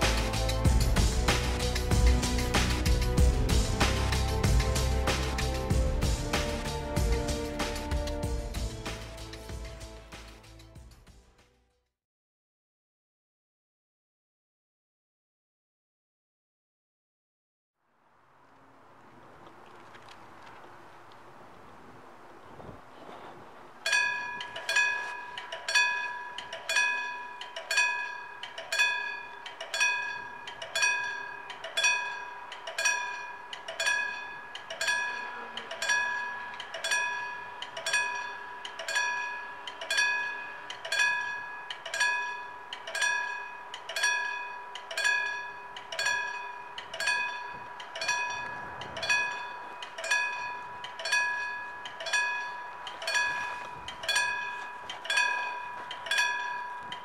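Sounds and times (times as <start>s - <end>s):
level crossing warning bell: 23.8s - 57.0s.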